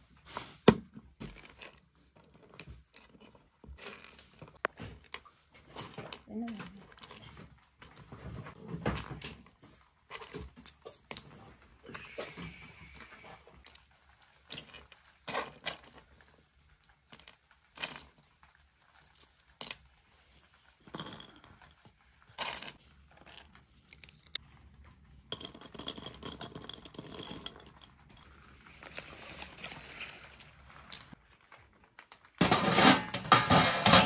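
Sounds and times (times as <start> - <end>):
walnut shells clicking and rustling: 9.0 - 11.8, 12.8 - 32.4.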